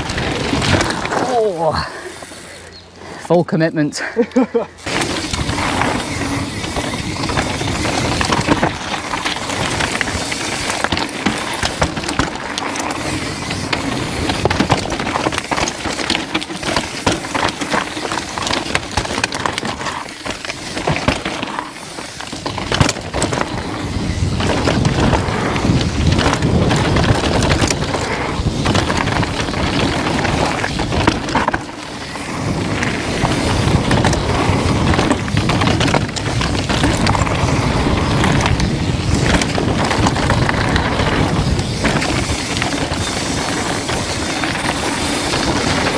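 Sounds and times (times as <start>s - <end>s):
tyres rumbling over rock and gravel: 0.0s - 2.4s, 4.8s - 45.9s
bike chain and frame clatter: 0.0s - 3.3s, 4.4s - 45.9s
wind buffeting microphone: 22.6s - 31.4s, 32.0s - 45.9s.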